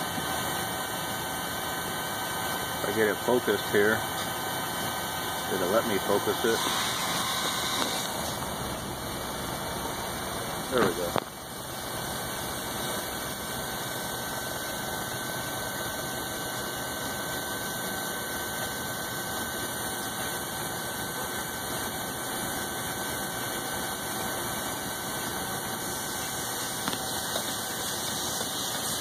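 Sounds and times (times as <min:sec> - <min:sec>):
metal lathe whine: 0:00.0 - 0:29.0
boring tool cutting brass: 0:05.6 - 0:08.4.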